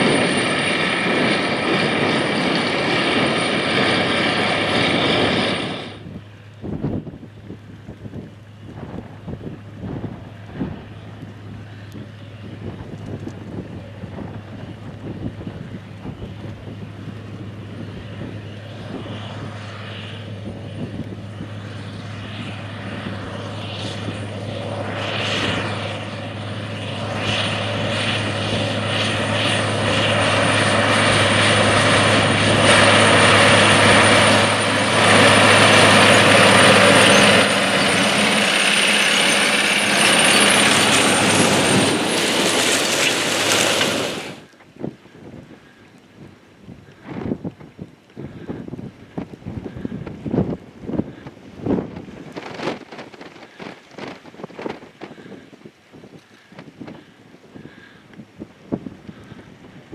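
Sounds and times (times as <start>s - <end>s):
tractor engine drone: 0.0s - 59.9s
tillage gangs rushing and rattling: 27.7s - 44.4s.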